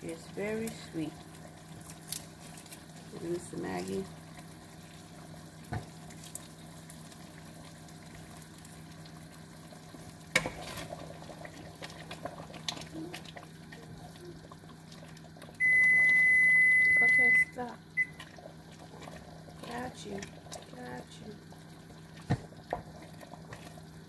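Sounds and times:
stew simmering: 0.0s - 24.0s.

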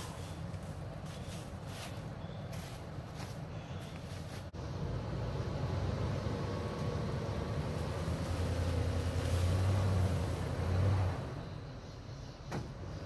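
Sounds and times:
vehicle engine under load: 4.4s - 13.0s.

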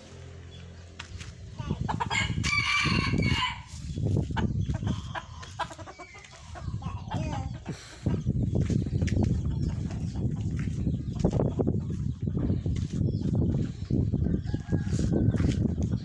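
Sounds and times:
rooster crowing: 2.1s - 3.7s.

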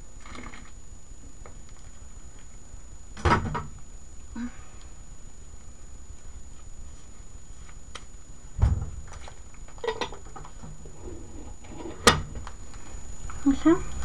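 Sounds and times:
dull thump: 8.6s - 9.1s.

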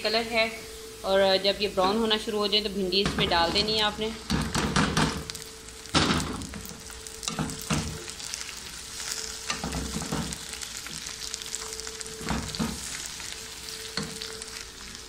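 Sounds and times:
faint steady hum: 0.0s - 15.0s
okra sizzling in hot oil: 0.0s - 15.0s.

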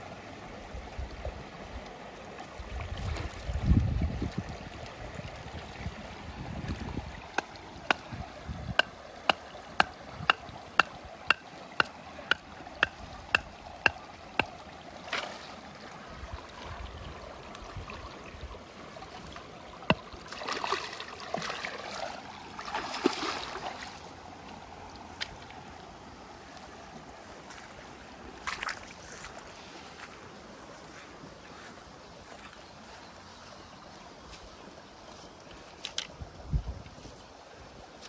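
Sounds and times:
shallow water running: 1.9s - 26.0s
wood knocking a stake: 7.4s - 14.5s
splashing: 19.0s - 24.0s.

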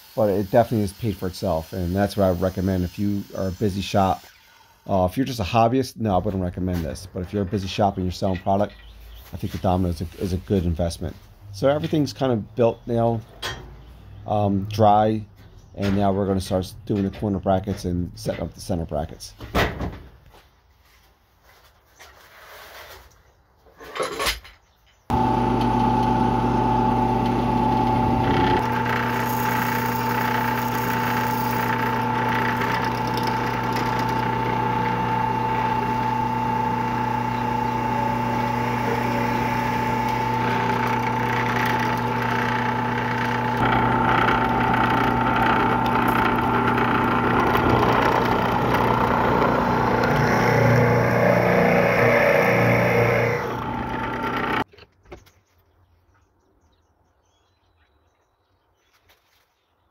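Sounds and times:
drill bit boring into wood: 0.0s - 4.6s, 25.1s - 54.6s
drill press motor humming: 25.1s - 54.6s.

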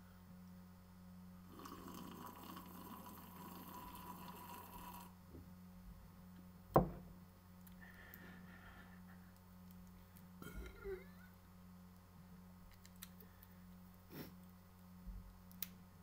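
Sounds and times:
sipping and swallowing: 1.5s - 5.1s.

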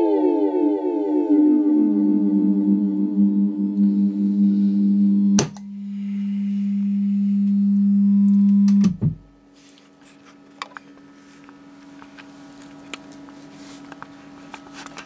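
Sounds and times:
synthesizer low drone: 0.0s - 8.6s.

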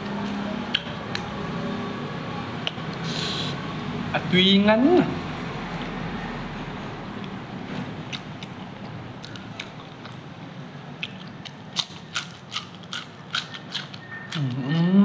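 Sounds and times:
person chewing crunchy vegetable: 11.0s - 15.0s.

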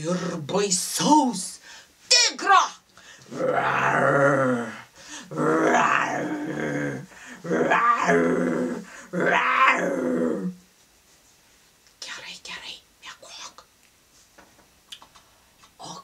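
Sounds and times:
woman growling like a tiger: 3.3s - 10.6s.

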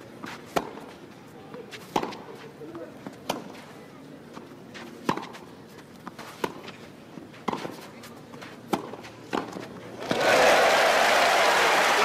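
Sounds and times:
racket hitting tennis ball: 0.2s - 1.0s, 1.7s - 2.4s, 3.0s - 3.6s, 4.8s - 5.4s, 6.0s - 10.2s.

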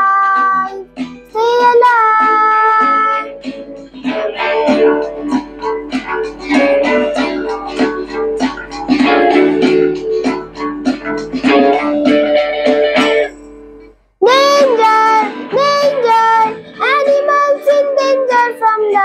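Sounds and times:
child singing: 0.0s - 3.3s, 14.2s - 19.0s
strummed plucked strings: 0.0s - 18.5s.

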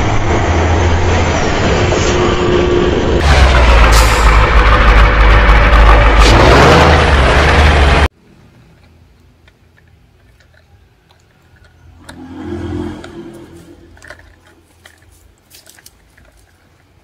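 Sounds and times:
low rush: 0.0s - 8.1s
toy trucks scraping on grit: 9.7s - 16.8s.

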